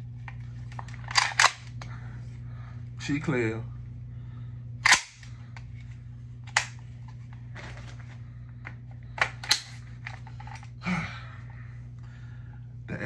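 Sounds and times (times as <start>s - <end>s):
steady low hum: 0.0s - 13.0s
magazine clacking into rifle: 0.7s - 1.8s, 4.8s - 5.3s, 6.5s - 6.8s.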